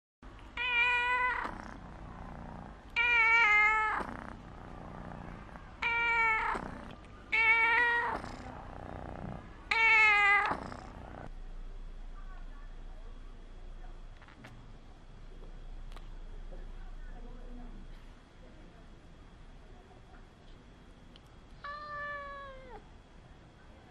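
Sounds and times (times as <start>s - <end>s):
cat meowing: 0.6s - 1.6s, 3.0s - 4.2s, 5.8s - 8.3s, 9.7s - 10.8s, 21.6s - 22.8s.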